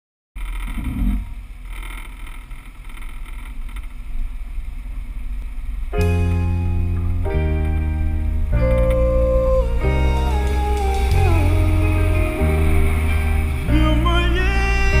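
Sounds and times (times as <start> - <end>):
music: 6.0 - 15.0.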